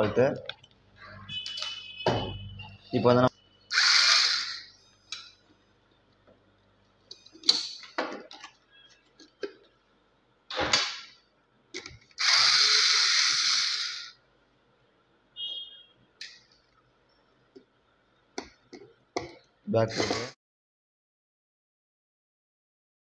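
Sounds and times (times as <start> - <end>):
cordless electric screwdriver running: 3.7 - 4.6, 12.2 - 14.0.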